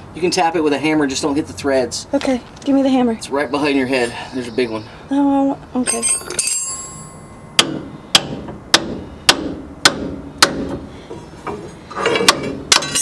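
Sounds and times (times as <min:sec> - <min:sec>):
hammer striking metal: 0:07.4 - 0:10.8.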